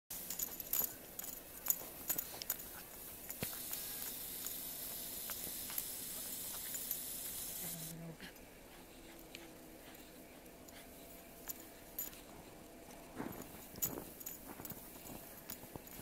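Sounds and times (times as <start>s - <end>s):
faint jingle: 0.1s - 7.7s, 9.1s - 16.0s
faint hiss: 1.2s - 9.2s.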